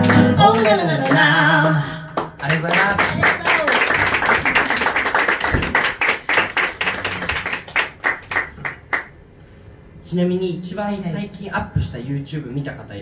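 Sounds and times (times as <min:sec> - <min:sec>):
small audience applauding: 0:00.0 - 0:09.2.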